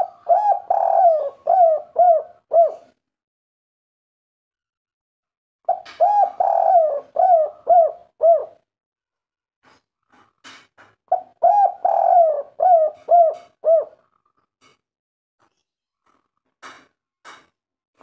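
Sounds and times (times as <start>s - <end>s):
dove cooing: 0.0s - 3.0s, 5.7s - 8.6s, 11.1s - 14.1s.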